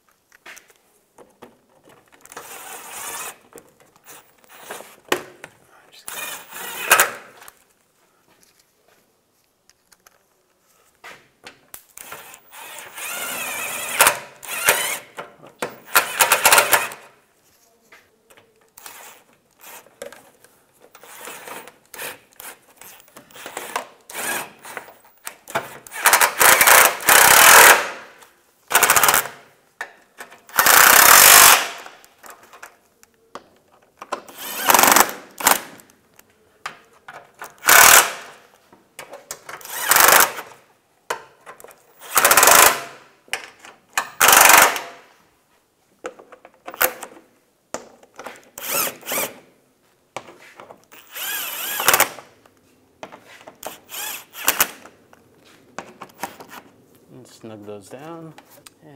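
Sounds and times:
power driver running screws: 0:02.3 - 0:03.4, 0:06.1 - 0:07.2, 0:12.0 - 0:15.1, 0:15.8 - 0:17.0, 0:18.8 - 0:19.9, 0:21.0 - 0:25.2, 0:25.8 - 0:28.0, 0:30.5 - 0:31.9, 0:34.3 - 0:35.7, 0:37.5 - 0:38.3, 0:39.6 - 0:40.5, 0:41.9 - 0:43.0, 0:44.1 - 0:44.9, 0:48.6 - 0:49.4, 0:50.9 - 0:52.2, 0:53.6 - 0:54.8.

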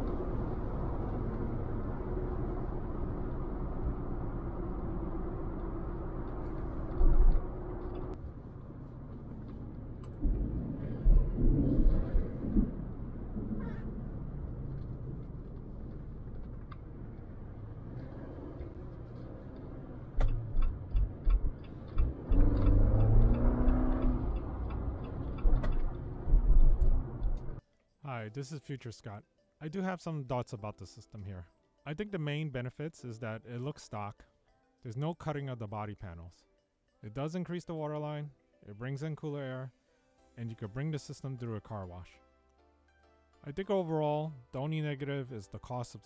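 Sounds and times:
car engine and road noise: 0:00.0 - 0:27.6.

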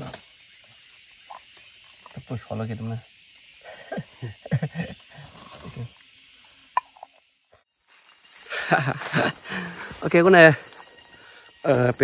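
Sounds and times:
insects hissing: 0:00.0 - 0:12.0
people talking: 0:11.7 - 0:12.0.

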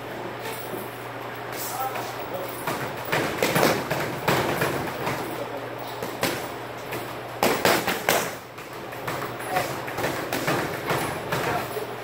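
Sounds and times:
boxing gloves slapping focus mitts: 0:02.6 - 0:05.3, 0:06.0 - 0:11.7.

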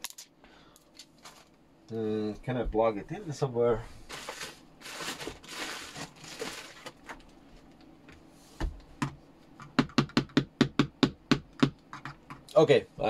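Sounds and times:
handling rustle: 0:01.0 - 0:01.6, 0:04.0 - 0:07.8.

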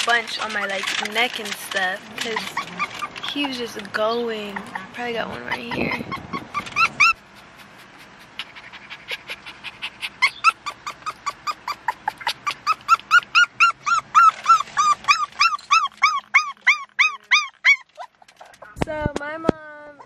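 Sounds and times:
puppy yelping whines: 0:02.1 - 0:03.7, 0:04.4 - 0:18.8.

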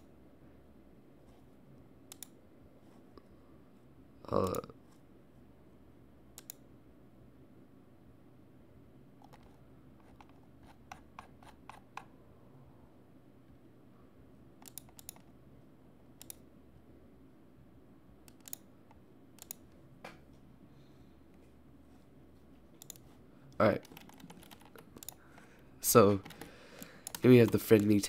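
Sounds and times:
low room hum: 0:00.0 - 0:28.0
computer clicks: 0:02.1 - 0:02.4, 0:06.4 - 0:06.6, 0:14.6 - 0:15.3, 0:16.2 - 0:16.4, 0:18.2 - 0:19.7, 0:22.8 - 0:25.5, 0:26.2 - 0:28.0.

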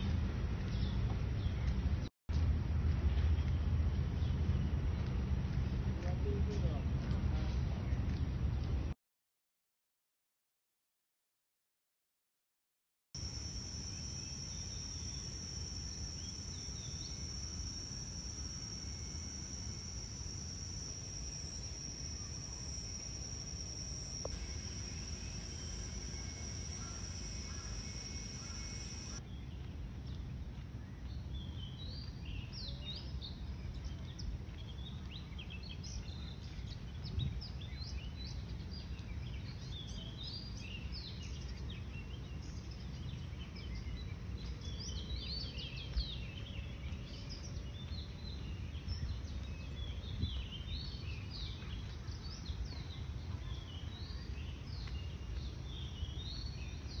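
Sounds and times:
steady low rumble: 0:00.0 - 0:09.0
birds chirping: 0:13.2 - 0:57.0.

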